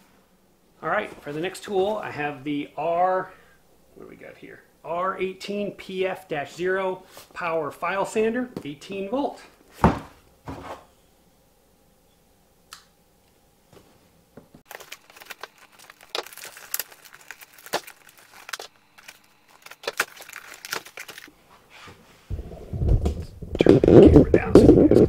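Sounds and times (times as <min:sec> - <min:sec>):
packaging rustling and crinkling: 0:14.7 - 0:21.3.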